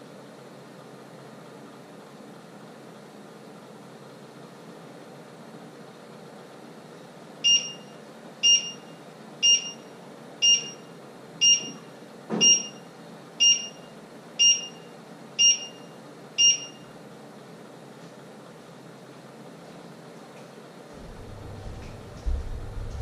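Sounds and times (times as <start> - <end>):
electronic alarm beeping: 7.4 - 11.8, 12.4 - 16.9.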